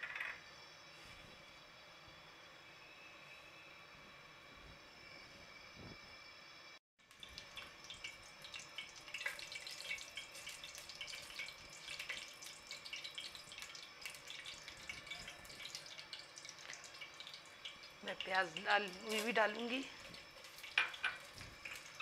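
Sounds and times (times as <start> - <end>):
spices sizzling in hot oil: 7.0 - 22.0.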